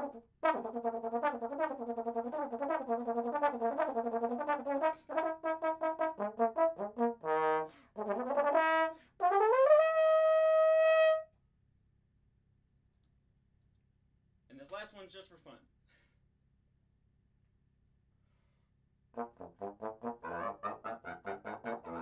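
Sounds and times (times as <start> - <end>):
solo trombone playing: 0.0 - 11.3, 19.1 - 22.0.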